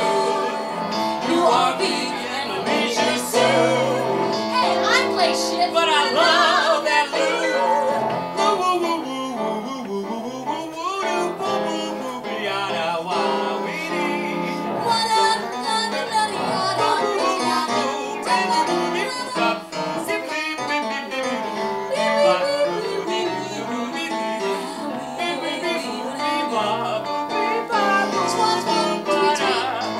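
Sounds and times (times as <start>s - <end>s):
woman singing: 1.2s - 8.8s, 14.8s - 20.7s, 21.9s - 29.9s.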